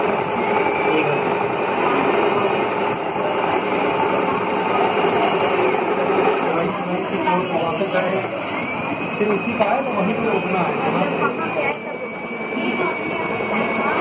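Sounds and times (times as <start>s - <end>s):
sewing machine running: 0.0s - 14.0s.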